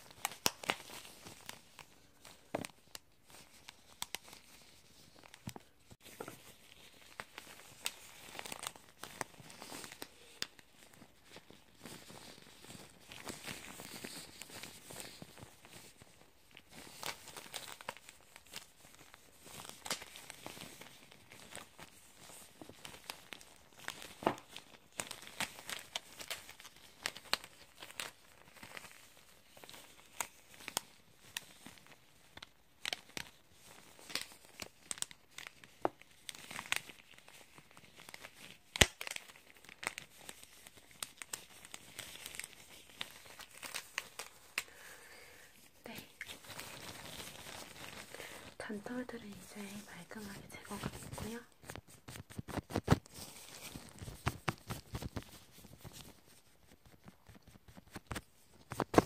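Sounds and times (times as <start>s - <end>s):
gloves rustling: 0.0s - 59.0s
thread ticking and snapping: 38.6s - 40.4s.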